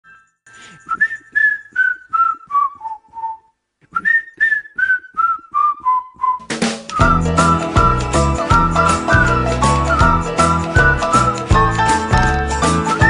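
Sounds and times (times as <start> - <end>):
person whistling descending notes: 0.6 - 13.0.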